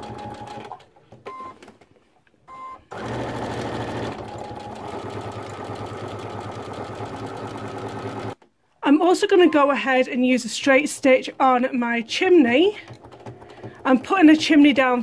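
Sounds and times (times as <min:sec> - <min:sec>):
electric sewing machine stitching: 0:02.9 - 0:08.4.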